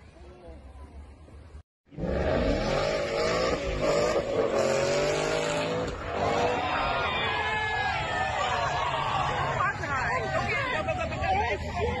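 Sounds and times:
car engine revving hard: 2.0 - 6.6.

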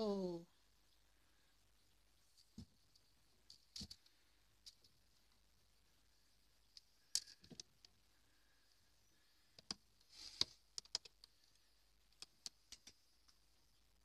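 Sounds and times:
claws clicking on cardboard: 9.6 - 13.4.

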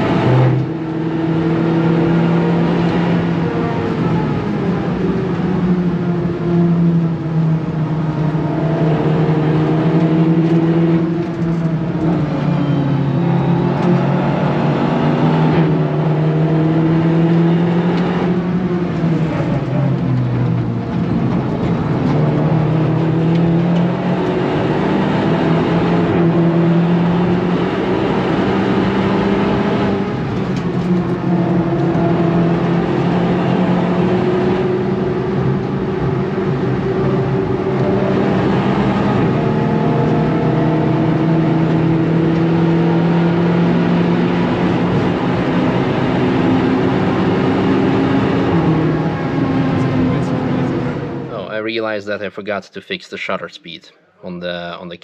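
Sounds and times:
car engine accelerating through gears: 0.0 - 51.5.

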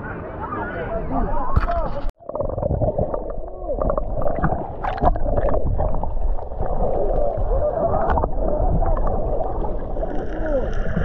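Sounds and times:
water sloshing and gurgling: 1.5 - 11.0.

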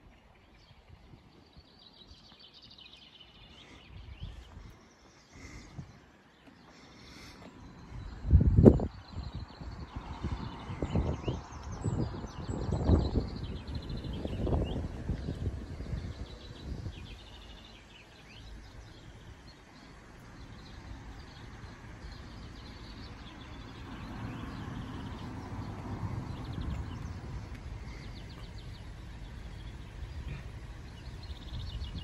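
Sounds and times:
small birds chirping: 0.0 - 32.0
gusty wind on microphone: 3.8 - 4.7, 7.9 - 17.6, 21.3 - 32.0.

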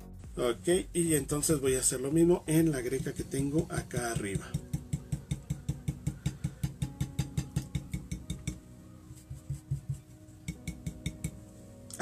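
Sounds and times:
stencil brush tapping on glass: 2.9 - 8.6, 9.2 - 11.4.

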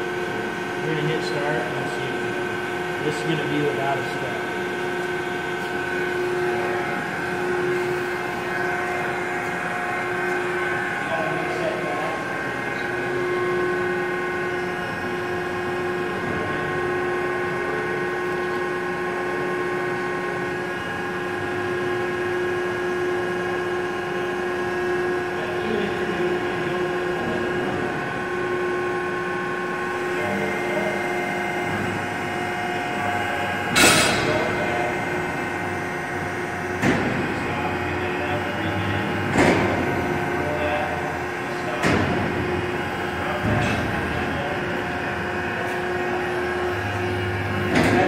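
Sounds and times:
hydraulic drive humming and whining: 0.0 - 48.0
sharp clunk: 33.7 - 34.4.

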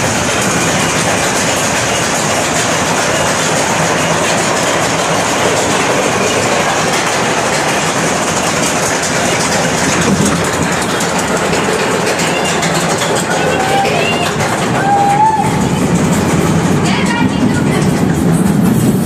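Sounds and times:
ride car wheels rumbling on track: 0.0 - 19.0.

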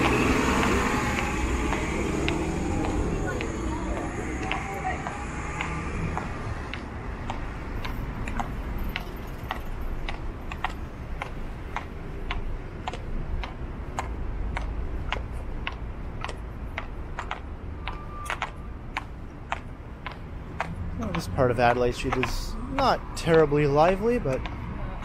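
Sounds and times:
footsteps on sidewalk: 0.0 - 25.0
low traffic rumble: 0.0 - 25.0
short beep: 17.8 - 18.4.

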